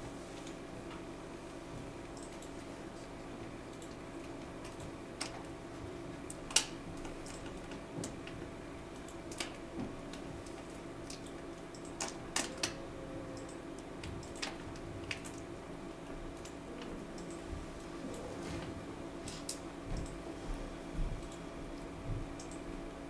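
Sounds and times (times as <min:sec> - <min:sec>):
steady low hum: 0:00.0 - 0:23.0
computer keys clicking: 0:02.1 - 0:02.6, 0:03.7 - 0:05.5, 0:06.2 - 0:12.8, 0:13.4 - 0:15.5, 0:16.3 - 0:16.6, 0:17.2 - 0:17.9, 0:19.4 - 0:20.2, 0:21.2 - 0:22.7.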